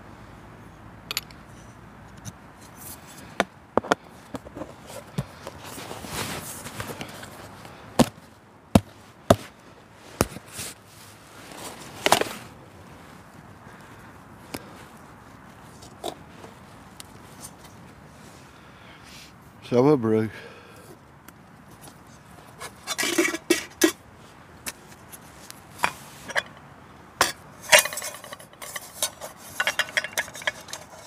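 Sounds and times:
rustling: 0:04.5 - 0:18.5.

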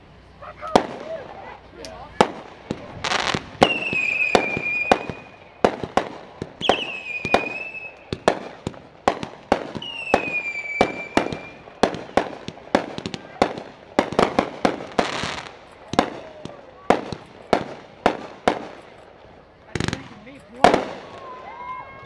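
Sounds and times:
fireworks bangs and crackles: 0:00.6 - 0:01.4, 0:02.1 - 0:21.8
whistling firework shells: 0:02.2 - 0:19.1.

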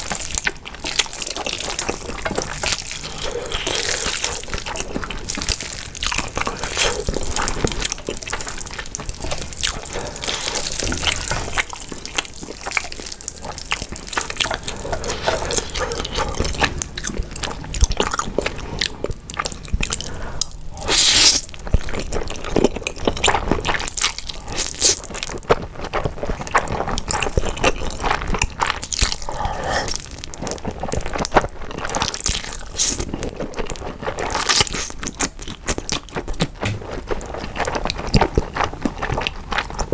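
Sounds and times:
slurping and chewing noodles: 0:00.0 - 0:39.9.

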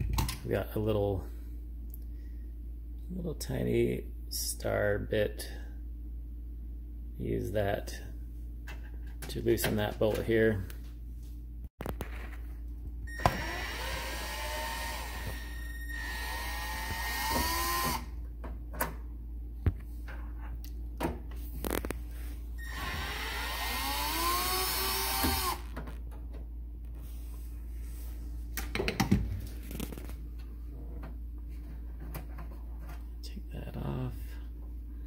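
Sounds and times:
screwdriver whine: 0:13.1 - 0:18.1, 0:22.6 - 0:25.7.

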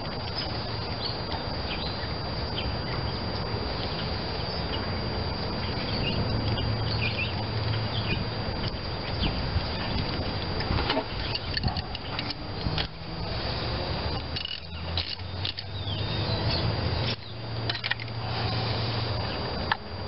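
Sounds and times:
steady low hum: 0:00.0 - 0:20.0
spark plug wires clicking and rattling: 0:14.1 - 0:15.8.

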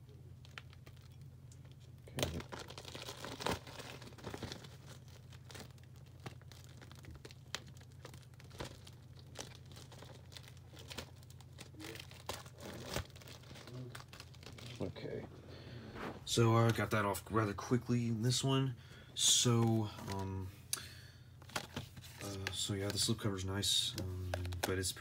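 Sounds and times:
plastic wrap crinkling and tearing: 0:00.4 - 0:15.3, 0:21.4 - 0:25.0.

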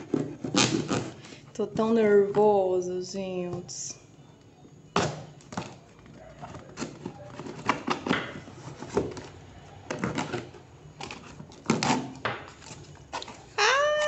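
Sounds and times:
knife cutting tape and cardboard: 0:00.0 - 0:01.2.

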